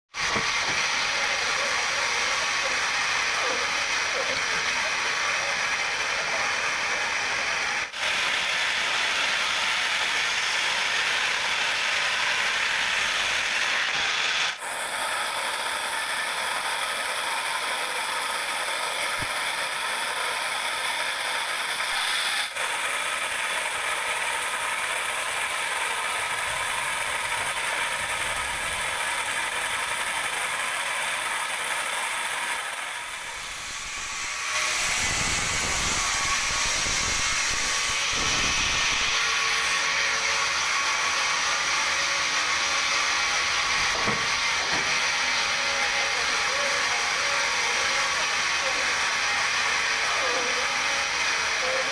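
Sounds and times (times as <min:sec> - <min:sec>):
band saw cutting log: 0:00.1 - 0:51.9.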